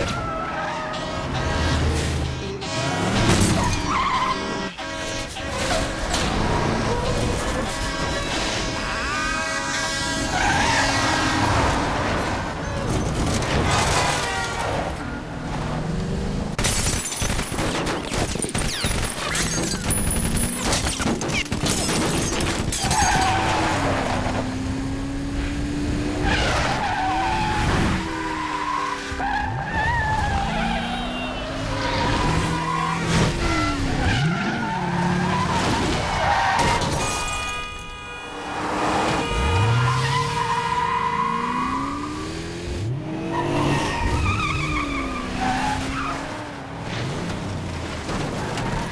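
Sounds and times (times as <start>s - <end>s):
tyres squealing and skidding: 0.0s - 15.6s, 18.0s - 24.5s, 26.2s - 46.6s, 48.1s - 48.9s
car engines revving hard: 22.6s - 36.8s, 38.3s - 48.9s.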